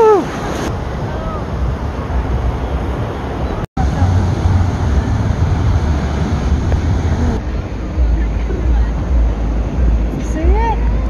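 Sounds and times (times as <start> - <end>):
surf: 0.0 - 11.0
wind buffeting microphone: 0.0 - 11.0.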